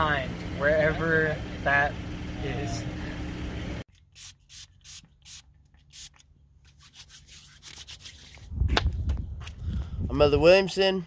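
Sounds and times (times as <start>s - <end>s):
low outdoor rumble: 0.0s - 3.8s.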